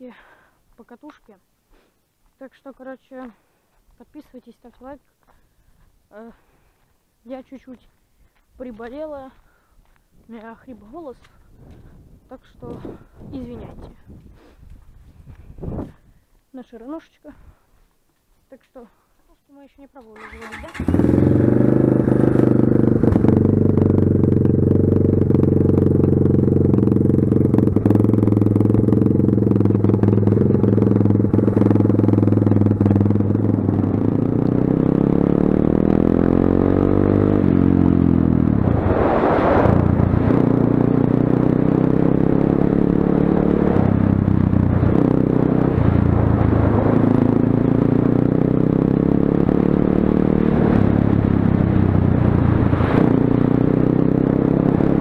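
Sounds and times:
dirt bike engine: 20.2 - 55.0.

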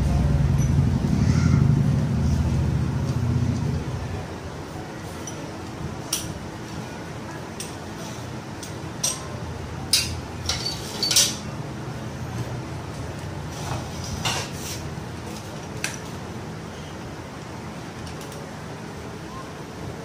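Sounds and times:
low hum: 0.0 - 4.8
metal tools clinking: 8.6 - 11.5.

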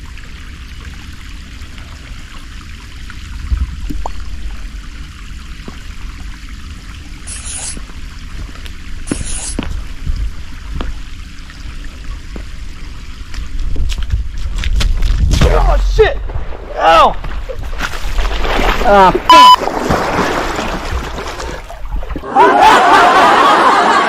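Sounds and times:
creek water trickling: 0.0 - 15.2
low rumble on microphone: 3.1 - 7.2, 7.8 - 17.8.

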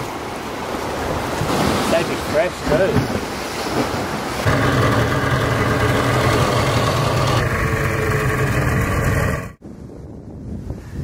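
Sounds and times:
boat engine running: 4.4 - 9.6.

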